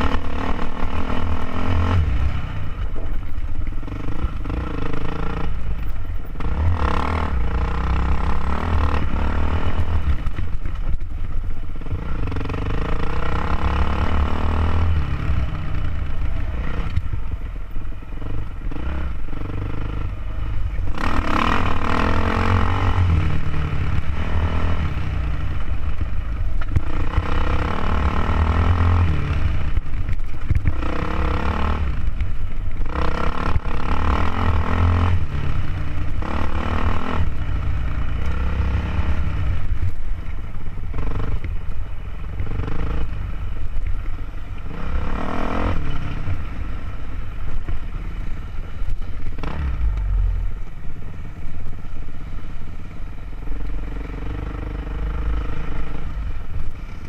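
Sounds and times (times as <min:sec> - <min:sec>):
dirt bike engine revving: 0:00.0 - 0:02.8, 0:03.8 - 0:10.3, 0:11.8 - 0:17.0, 0:18.2 - 0:26.0, 0:26.7 - 0:32.1, 0:32.8 - 0:39.8, 0:44.7 - 0:46.6.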